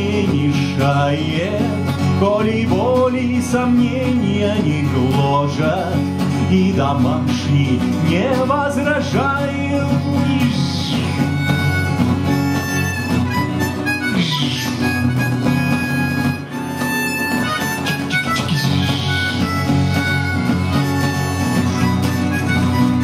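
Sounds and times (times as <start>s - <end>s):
strummed acoustic guitar: 0.0s - 23.0s
harmonica solo: 9.0s - 23.0s.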